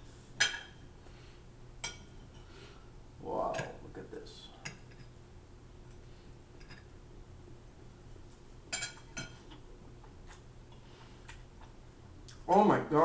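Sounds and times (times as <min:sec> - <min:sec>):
cutlery clinking on plates: 0:08.7 - 0:09.6.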